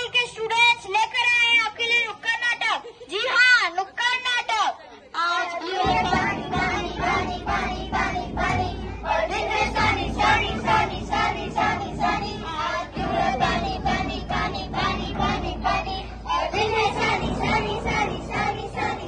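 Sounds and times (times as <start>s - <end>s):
children singing in unison: 5.5s - 19.0s.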